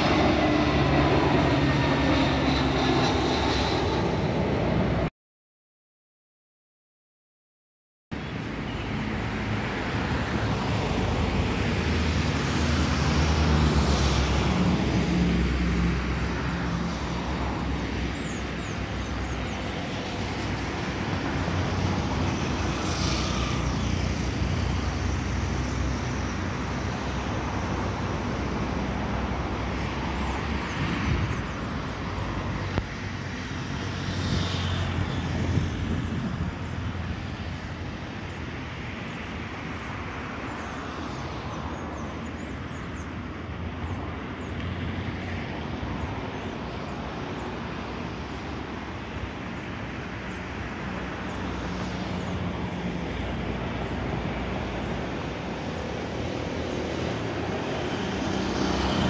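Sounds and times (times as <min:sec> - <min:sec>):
low engine hum: 0:00.0 - 0:05.1
vehicles passing: 0:00.0 - 0:05.1, 0:08.2 - 0:59.0.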